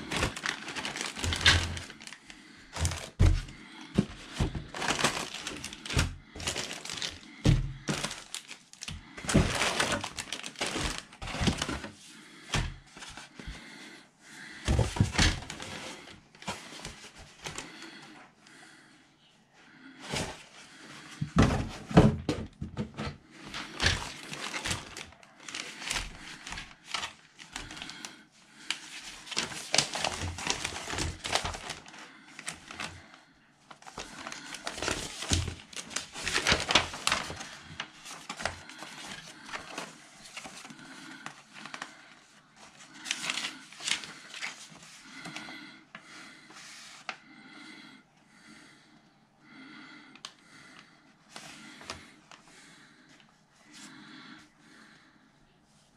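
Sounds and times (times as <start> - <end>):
plastic bags crinkling: 0.0 - 12.0, 23.4 - 33.1, 33.7 - 45.5
paper sheets rustling: 0.0 - 13.6, 22.8 - 33.1, 33.7 - 45.6.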